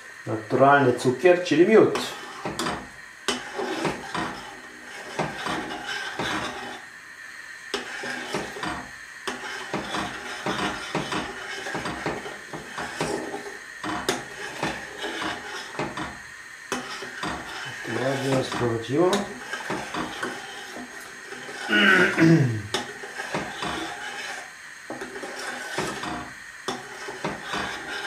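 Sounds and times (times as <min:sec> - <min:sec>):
spoon clinking and scraping pot: 0:07.8 - 0:21.7
spoon stirring in metal saucepan: 0:07.8 - 0:21.7.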